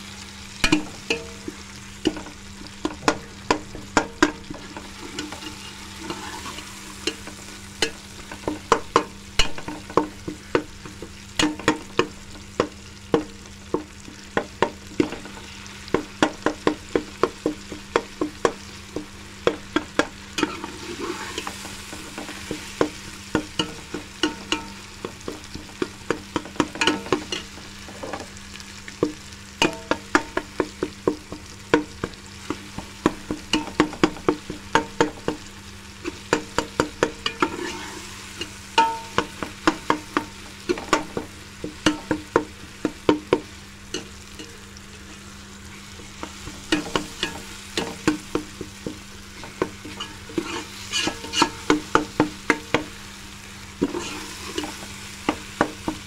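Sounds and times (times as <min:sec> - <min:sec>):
meat sizzling in oil: 0:00.0 - 0:56.0
metal spoon scraping a pot: 0:05.1 - 0:07.2, 0:20.4 - 0:22.4, 0:37.3 - 0:39.3, 0:49.9 - 0:51.7, 0:53.8 - 0:54.8.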